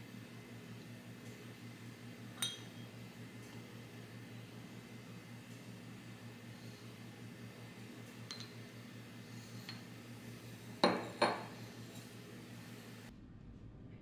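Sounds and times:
steady low hum: 0.0 - 14.0
ringing metallic clinks: 2.4 - 2.8.

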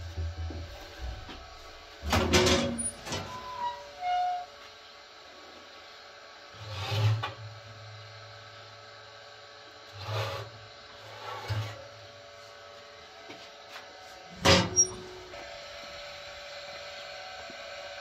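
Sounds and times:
metal tin scraping oven rack: 2.0 - 4.4.

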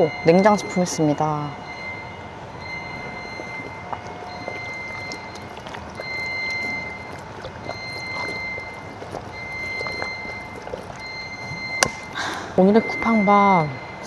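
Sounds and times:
steady background noise: 0.0 - 14.0
high electronic beep: 11.0 - 14.0.

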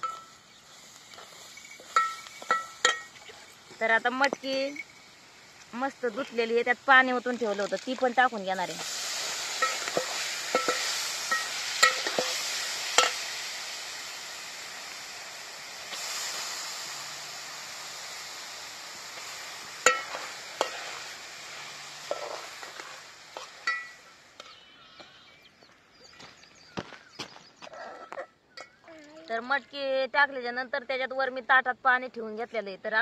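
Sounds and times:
beans sizzling in hot oil: 0.0 - 26.3.

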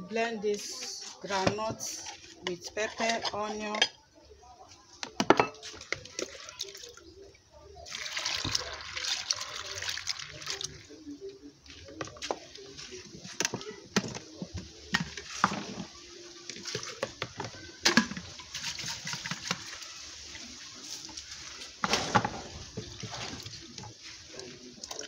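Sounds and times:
water splashing: 5.6 - 13.8
hands swishing nuts in water: 14.9 - 25.0.

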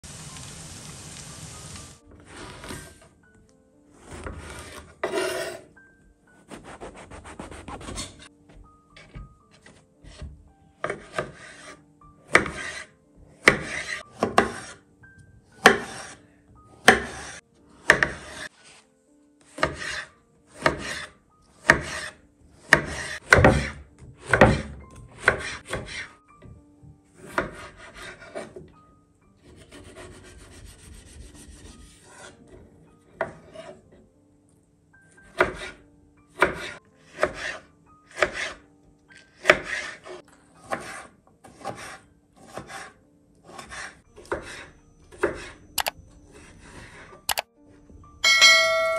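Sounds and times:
faint steady hiss: 0.0 - 2.0
knife slicing on wooden board: 9.6 - 14.8, 15.6 - 16.2, 16.8 - 18.5, 19.5 - 24.6, 39.4 - 44.6.

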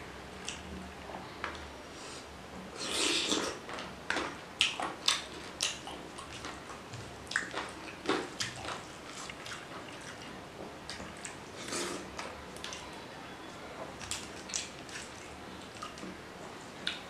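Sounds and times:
wet chewing and lip-smacking: 3.2 - 12.9, 14.0 - 16.1.

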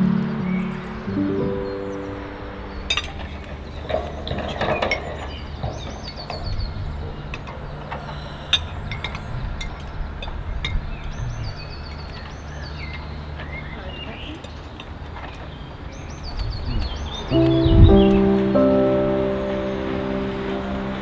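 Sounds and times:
music cue: 0.0 - 4.9, 17.3 - 21.0.

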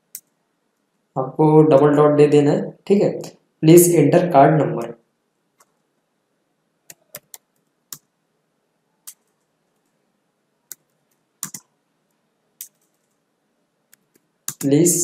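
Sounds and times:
keyboard keystrokes: 10.7 - 11.7.

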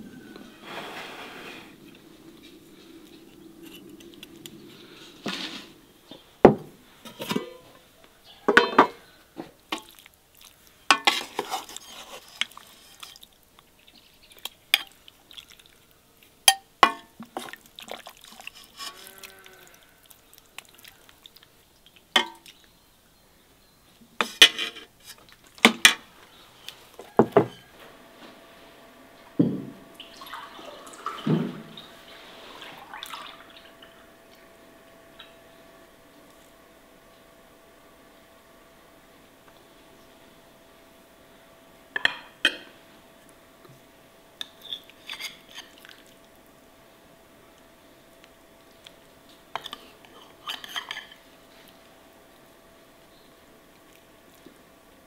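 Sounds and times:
utensils clinking against pots and dishes: 7.1 - 7.7, 8.5 - 9.0, 49.6 - 51.2.

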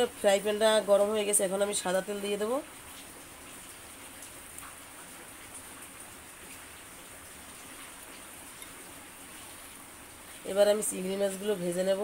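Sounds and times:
oil sizzling in a pan: 0.0 - 12.0.

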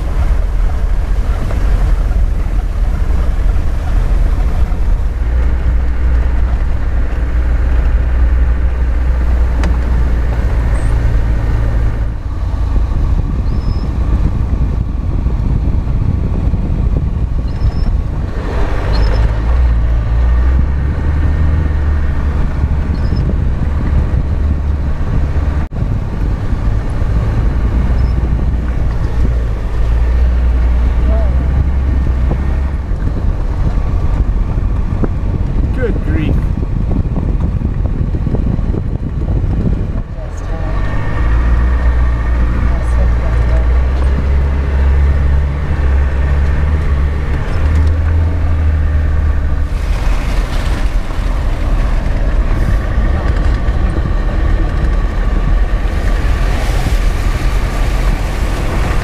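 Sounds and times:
engine and tyre rumble: 0.0 - 59.0
wind noise on microphone: 0.0 - 59.0.

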